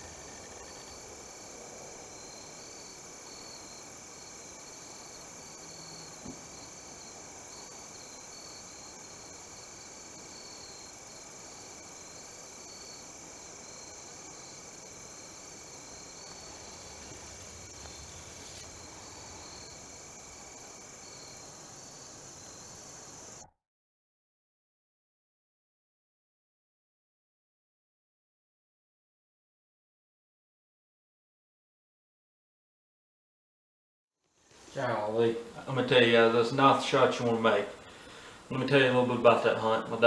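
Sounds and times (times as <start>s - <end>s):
rhythmic pulsing chirp: 0.0s - 1.6s
crickets trilling: 0.0s - 23.4s.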